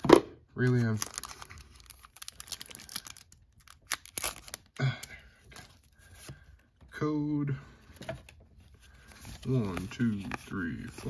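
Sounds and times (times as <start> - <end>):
foil wrapper tearing and crinkling: 0.9 - 4.8.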